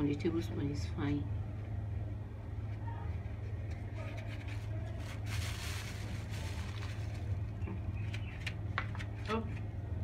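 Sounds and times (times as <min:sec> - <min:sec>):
steady low hum: 0:00.0 - 0:10.0
plastic bag rustling: 0:03.8 - 0:09.2.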